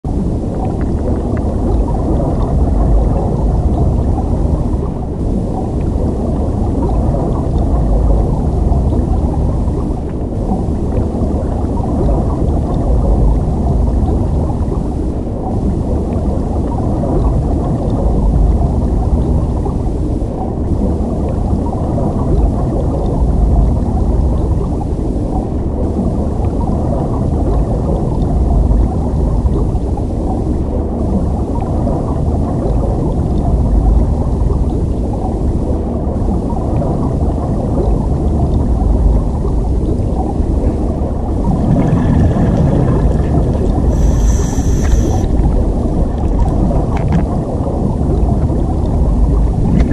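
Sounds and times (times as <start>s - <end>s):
muffled underwater rumble and gurgle: 0.0s - 49.9s.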